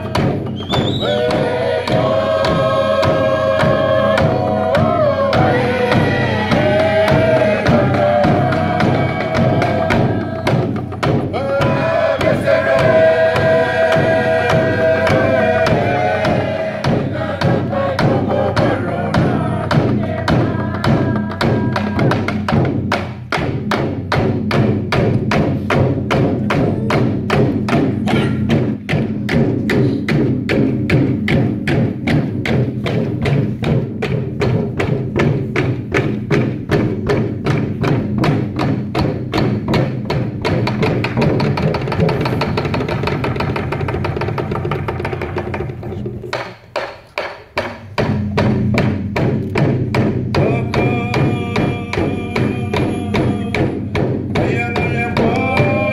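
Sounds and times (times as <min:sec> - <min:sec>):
group chant-singing: 0:00.0 - 0:22.6, 0:50.4 - 0:53.8, 0:54.4 - 0:55.9
wooden drums beating: 0:00.0 - 0:55.9.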